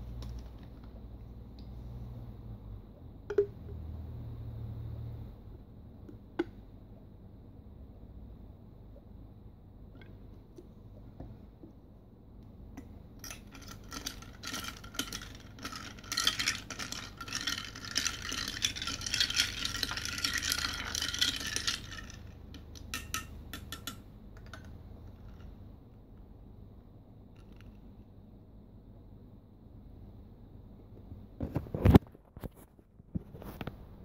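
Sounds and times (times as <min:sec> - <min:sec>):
spoon stirring ice in a glass: 0:13.2 - 0:24.6.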